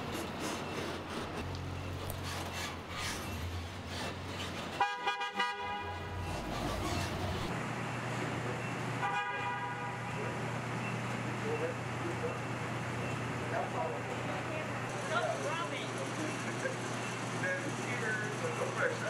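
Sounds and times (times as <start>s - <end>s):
vehicle horn toots: 4.7s - 6.4s, 9.0s - 10.3s
truck engine running: 5.6s - 9.0s, 10.2s - 19.0s.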